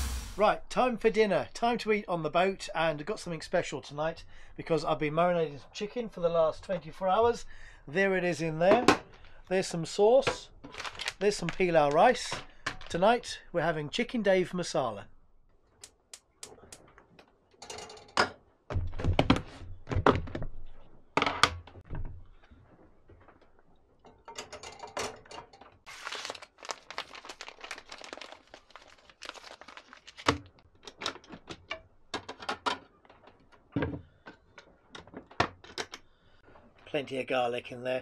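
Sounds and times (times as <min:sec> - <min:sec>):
food hissing in pan: 0:00.0 - 0:00.4.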